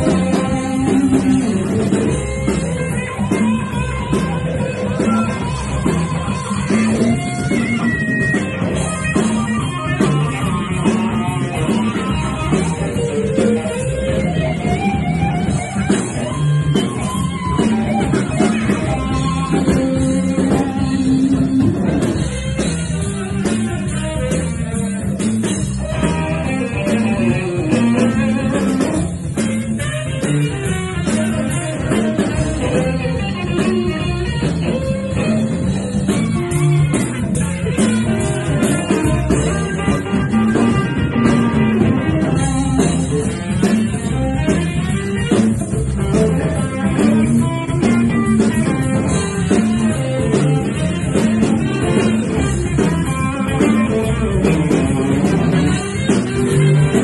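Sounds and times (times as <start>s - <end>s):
drum kit: 0.0s - 57.0s
electric guitar: 0.0s - 57.0s
saxophone: 25.7s - 57.0s.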